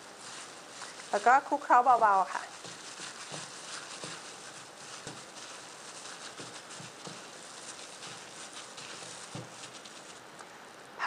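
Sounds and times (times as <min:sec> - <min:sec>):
squishing pats of wet meat: 0:00.0 - 0:10.4.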